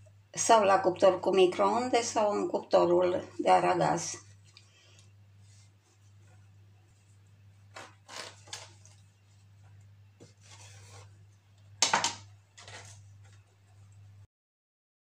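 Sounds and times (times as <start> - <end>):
low steady hum: 0.0 - 14.3
knife sawing through pastry crust: 10.3 - 11.1.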